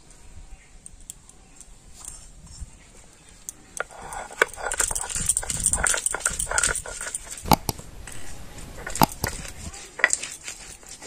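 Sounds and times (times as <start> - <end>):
stone scraping on stone: 3.7 - 11.0.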